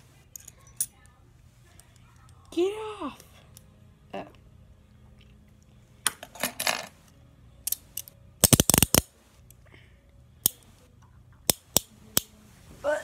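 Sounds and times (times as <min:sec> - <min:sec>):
handcuffs clicking: 0:00.3 - 0:00.9, 0:07.6 - 0:09.6, 0:11.4 - 0:12.3.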